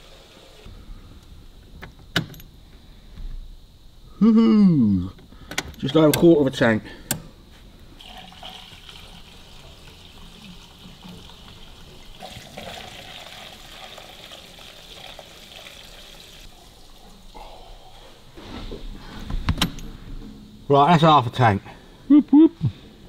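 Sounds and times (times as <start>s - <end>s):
petrol pouring into a funnel: 8.0s - 17.2s.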